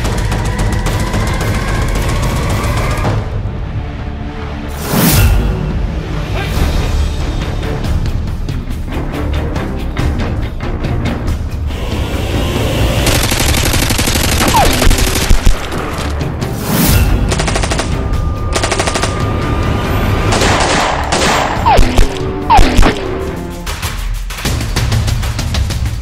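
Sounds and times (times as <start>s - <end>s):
driving action music: 0.0s - 26.0s
automatic gunfire bursts: 13.1s - 16.1s.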